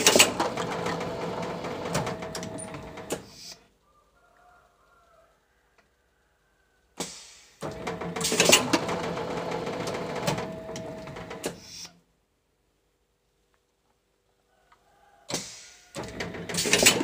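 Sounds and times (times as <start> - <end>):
sharp air hiss: 7.0 - 7.6, 11.5 - 12.0, 15.3 - 15.8
machine clatter and hissing: 15.3 - 17.0.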